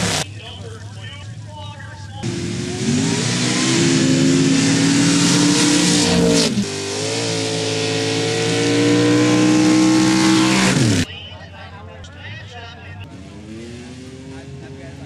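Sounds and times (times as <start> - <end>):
engine at high revs: 0.0 - 0.2, 2.2 - 11.1, 13.0 - 15.0
racing truck engines revving hard: 0.0 - 0.5, 2.2 - 11.1, 13.0 - 15.0.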